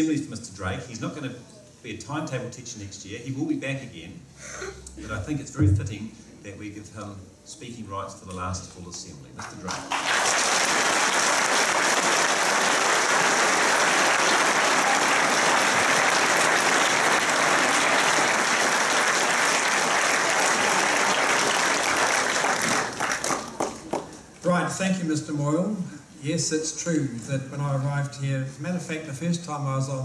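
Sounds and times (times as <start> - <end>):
audience applauding: 9.4 - 24.2.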